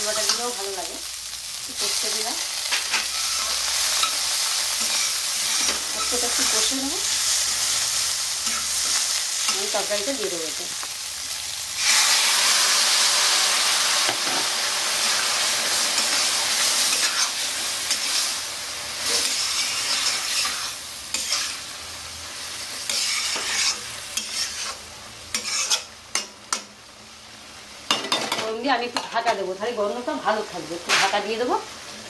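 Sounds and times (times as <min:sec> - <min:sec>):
food sizzling in hot oil: 0:00.0 - 0:32.0
metal spatula stirring: 0:15.8 - 0:18.3, 0:19.0 - 0:21.6, 0:22.8 - 0:26.6.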